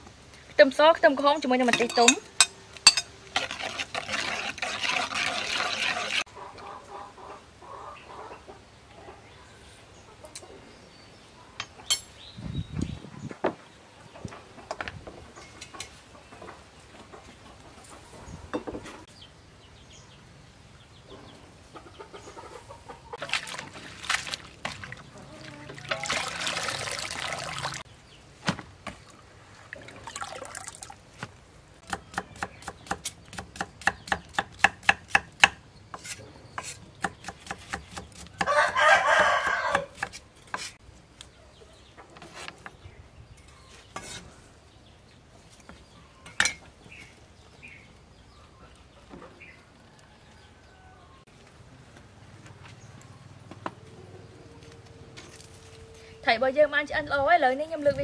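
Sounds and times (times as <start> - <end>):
knife chopping on wooden board: 31.9 - 38.8.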